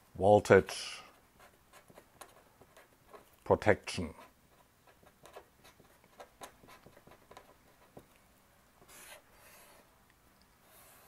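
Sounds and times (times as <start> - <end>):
pen writing on paper: 1.4 - 3.3, 4.1 - 8.1, 8.8 - 9.9, 10.6 - 11.0.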